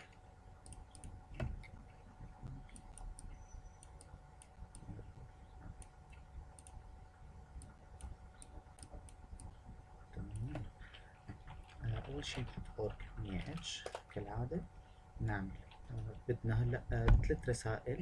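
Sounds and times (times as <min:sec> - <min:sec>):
computer mouse clicks: 0:00.0 - 0:01.8, 0:05.7 - 0:06.8
steady low hum: 0:00.0 - 0:18.0.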